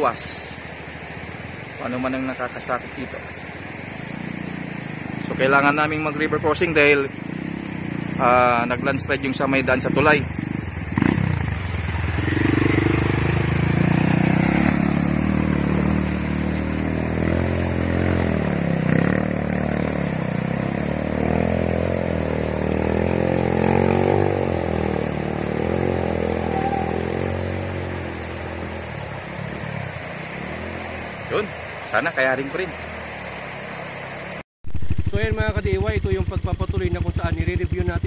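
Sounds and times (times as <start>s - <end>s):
dirt bike engine revving: 4.0s - 32.1s, 32.7s - 38.0s.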